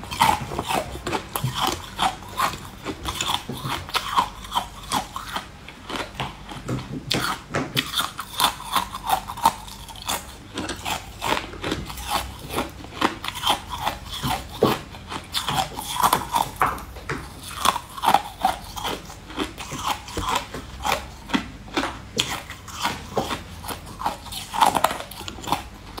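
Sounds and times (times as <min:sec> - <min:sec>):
person crunching and chewing: 0:00.0 - 0:26.0.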